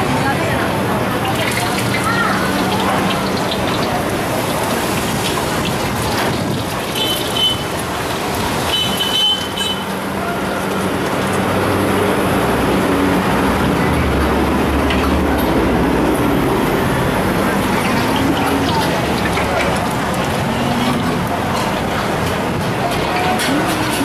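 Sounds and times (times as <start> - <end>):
road traffic passing: 0.0 - 24.0
steady frying hiss: 0.5 - 11.7.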